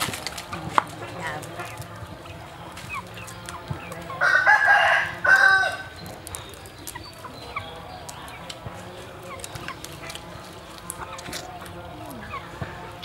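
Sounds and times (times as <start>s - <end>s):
rooster crowing: 4.2s - 6.0s.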